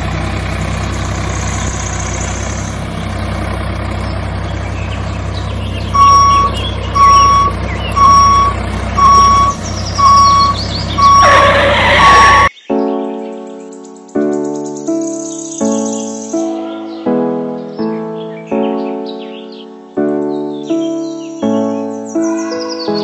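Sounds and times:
low engine drone: 0.0 - 12.5
reversing alarm beeping: 5.8 - 12.5.

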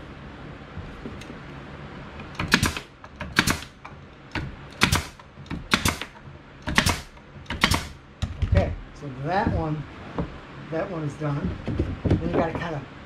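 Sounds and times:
nail gun firing into wood: 2.3 - 8.0.

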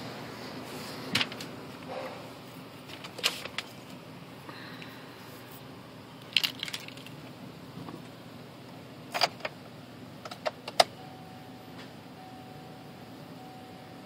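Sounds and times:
ignition keys jangling and clicking: 6.2 - 7.3, 9.1 - 9.6, 10.2 - 11.0
faint steady tone: 11.0 - 14.0.

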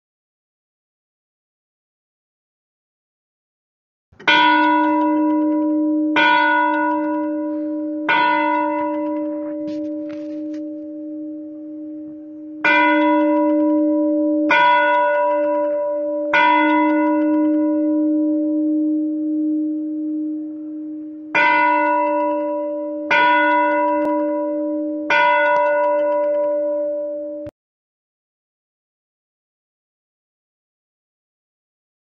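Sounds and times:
bell ringing: 4.2 - 27.5.

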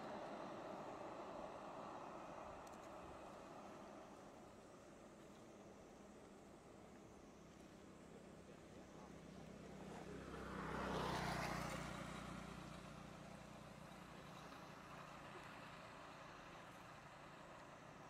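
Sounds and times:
motor vehicle passing by: 8.9 - 17.7.

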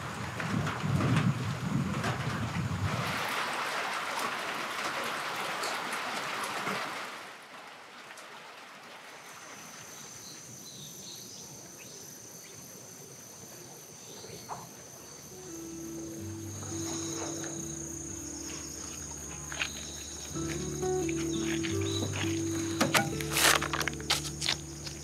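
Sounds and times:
rain on a tiled roof: 0.0 - 9.8
insects trilling: 9.3 - 25.0
music: 15.4 - 25.0.

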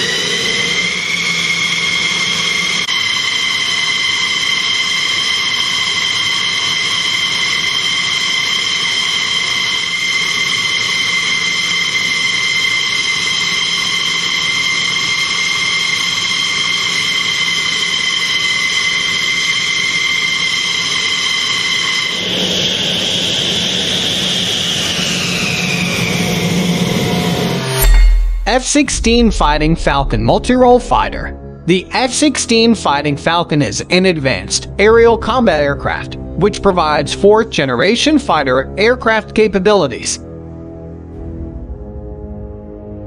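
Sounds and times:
jet turbine engine whine: 0.0 - 38.0
rushing noise: 22.1 - 32.4.

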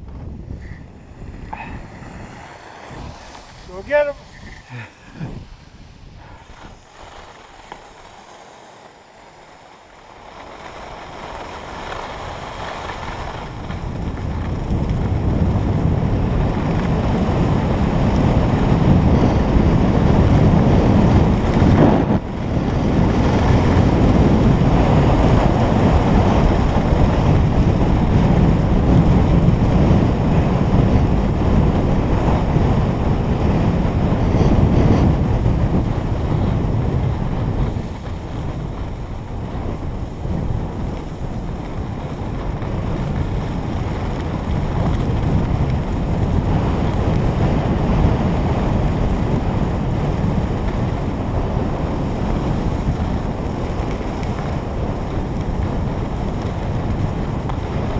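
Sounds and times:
wind buffeting microphone: 0.0 - 57.9.

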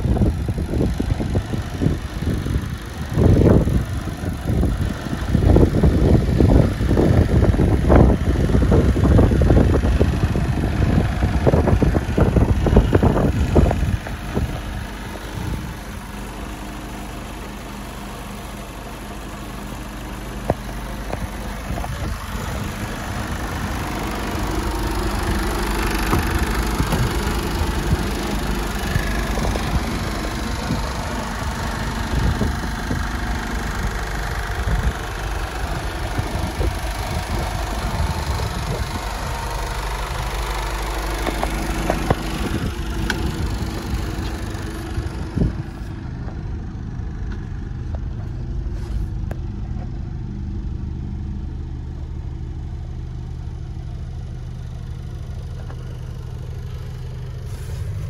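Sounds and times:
diesel engine idling: 0.0 - 58.0
loud irregular rumble: 0.0 - 58.0.

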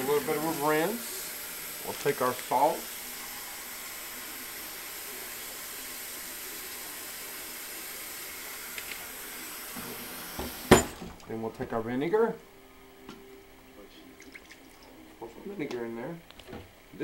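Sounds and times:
faucet water splashing into bowl: 14.2 - 14.9.

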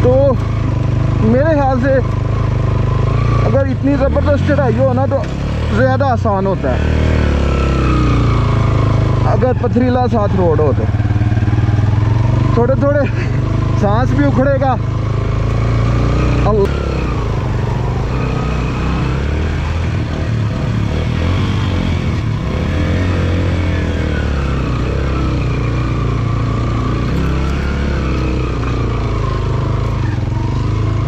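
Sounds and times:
motorcycle engine under load: 0.0 - 31.0.

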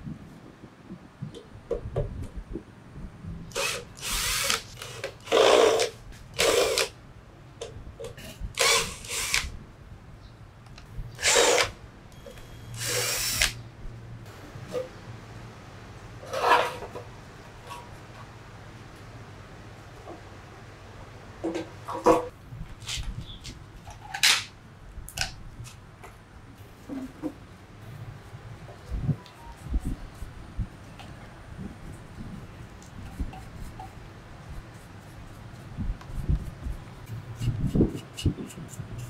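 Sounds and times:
cordless drill running in bursts: 3.5 - 4.6, 12.8 - 13.5.

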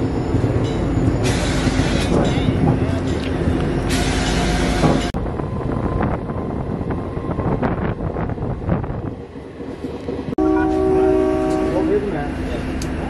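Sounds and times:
train wheels rumbling and clattering: 0.0 - 13.0
wind buffeting microphone: 4.6 - 10.4.

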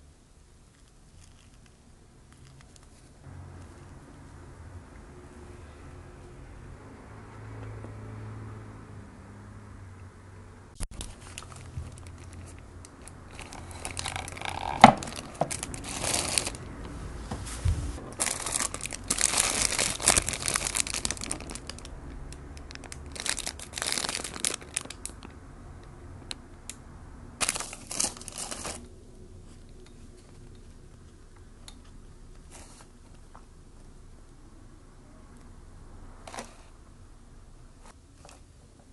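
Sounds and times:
paper wrapper crinkling: 10.9 - 16.7, 18.0 - 22.0, 22.6 - 25.2, 27.4 - 28.9.

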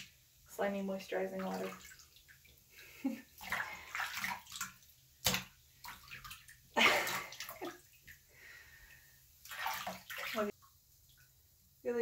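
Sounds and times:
hand splashing through bathwater: 1.2 - 8.3, 9.4 - 10.5.

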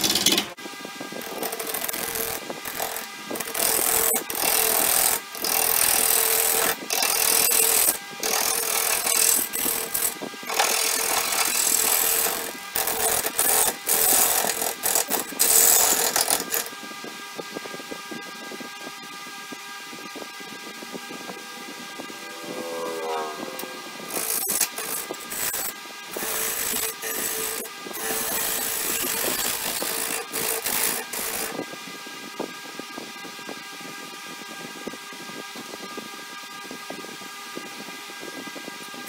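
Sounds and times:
gouge cutting wood on lathe: 0.0 - 0.6, 1.2 - 16.7, 24.0 - 31.6
lathe humming: 1.2 - 16.7, 20.8 - 31.6.

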